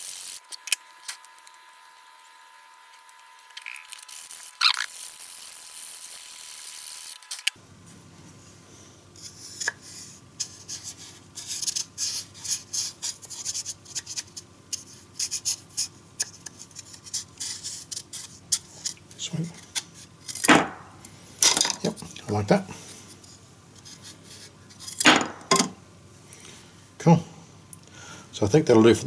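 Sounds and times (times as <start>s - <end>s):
steady hiss: 0.0s - 7.6s.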